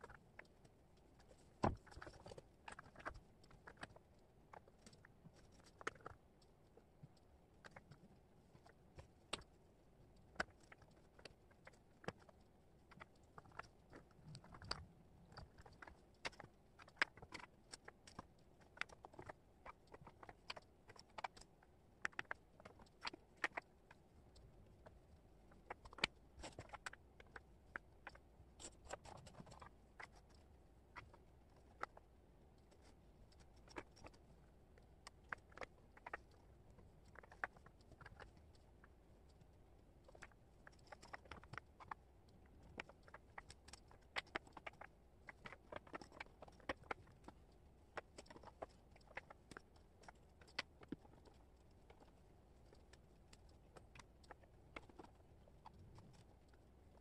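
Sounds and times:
wooden puzzle pieces clicking: 0:25.7 - 0:30.4, 0:35.0 - 0:36.4.

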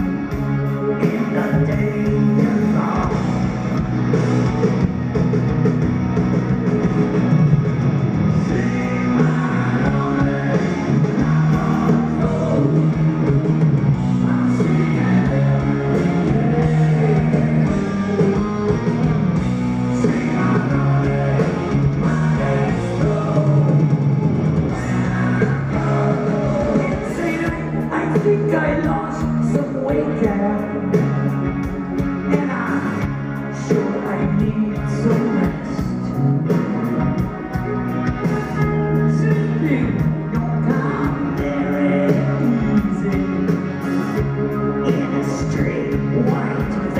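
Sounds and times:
drum kit: 0:00.0 - 0:46.9
electric guitars: 0:00.0 - 0:46.9
man singing: 0:00.6 - 0:03.5, 0:08.4 - 0:13.2, 0:14.0 - 0:18.8, 0:19.9 - 0:24.0, 0:24.7 - 0:31.1, 0:32.2 - 0:36.2, 0:38.3 - 0:46.9.

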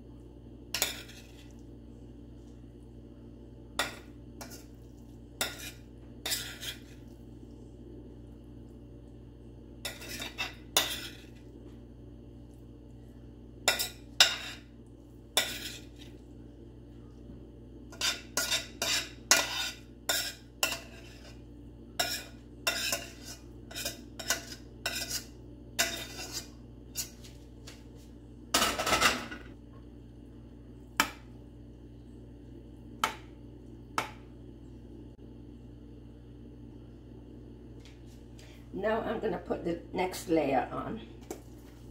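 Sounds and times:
metal spoon scraping glass dish: 0:22.0 - 0:27.1.

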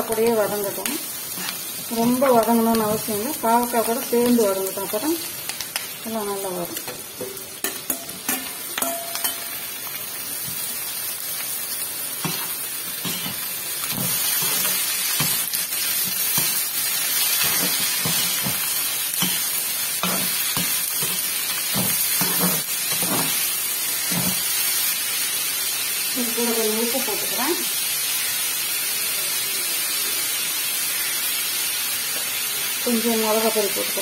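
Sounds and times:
oil sizzling: 0:00.0 - 0:34.0
spatula scraping a pan: 0:17.3 - 0:23.4.

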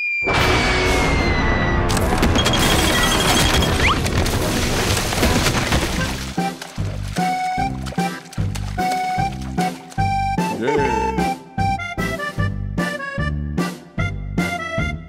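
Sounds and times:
crash and rumble of impact: 0:00.4 - 0:06.4
descending falling whistle: 0:00.9 - 0:01.9
bouncy background music: 0:06.1 - 0:15.0.

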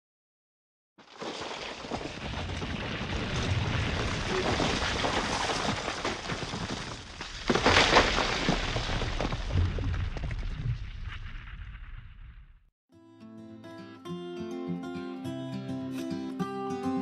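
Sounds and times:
rock crash: 0:01.0 - 0:12.6
rock tumbling rumble: 0:01.0 - 0:12.7.

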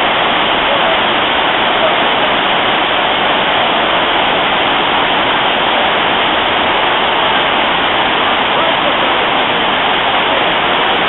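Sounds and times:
waterfall rushing over rocks: 0:00.0 - 0:11.0.

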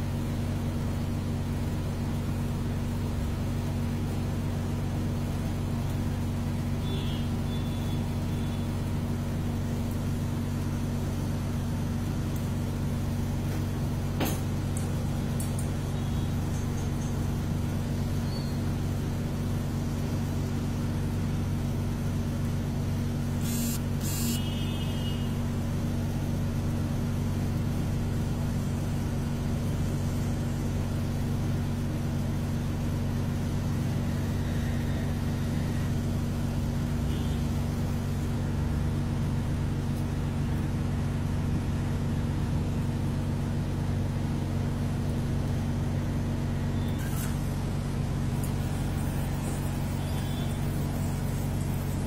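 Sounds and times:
low machine hum: 0:00.0 - 0:52.0
high click or scrape: 0:46.9 - 0:47.5.

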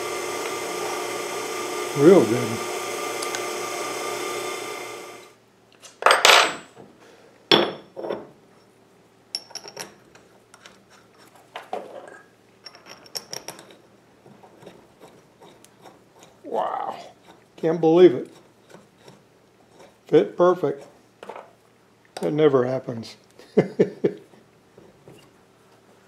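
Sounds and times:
milling machine motor hum: 0:00.0 - 0:05.4
metal clinks and knocks: 0:09.4 - 0:10.1, 0:12.1 - 0:13.8.

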